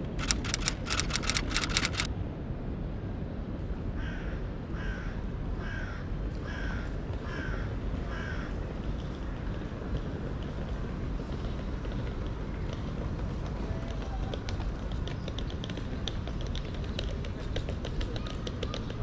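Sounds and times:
rapid rattling clicks: 0:00.0 - 0:02.1
low city rumble: 0:00.0 - 0:19.0.

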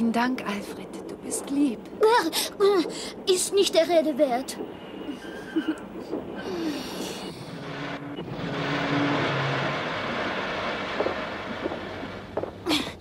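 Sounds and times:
low drone: 0:04.4 - 0:13.0.

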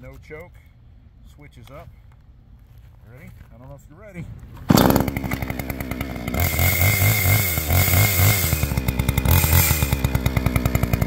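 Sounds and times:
chainsaw revving: 0:04.7 - 0:11.0.

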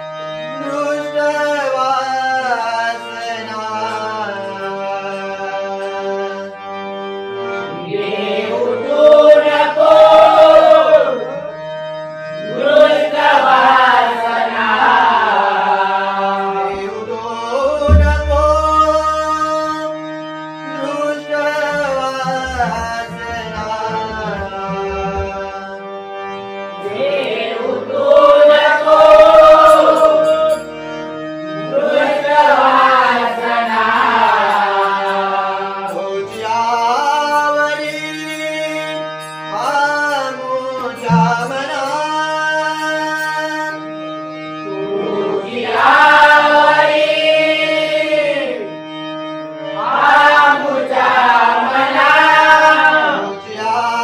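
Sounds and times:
harmonium chords: 0:00.0 - 0:54.0
men singing in chorus: 0:00.6 - 0:06.4, 0:07.7 - 0:11.5, 0:12.4 - 0:19.9, 0:20.8 - 0:25.9, 0:26.8 - 0:30.7, 0:31.7 - 0:43.8, 0:44.6 - 0:48.7, 0:49.7 - 0:54.0
hand drum beating: 0:17.9 - 0:19.1, 0:41.1 - 0:41.6.

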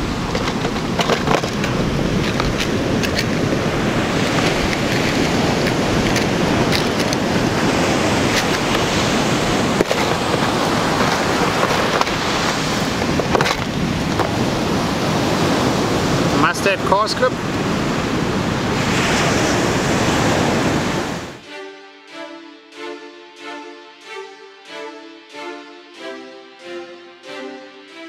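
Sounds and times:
surf breaking on a beach: 0:00.0 - 0:21.4
fishing tackle clicks: 0:00.6 - 0:03.4, 0:04.3 - 0:07.2.

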